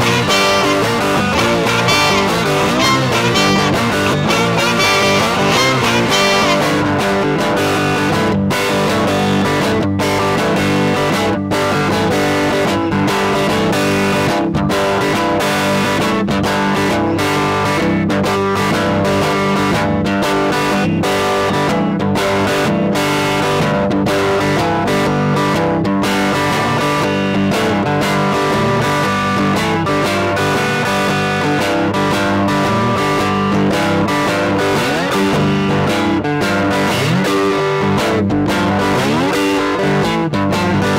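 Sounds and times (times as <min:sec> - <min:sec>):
blues electric guitar: 0:00.0 - 0:40.9.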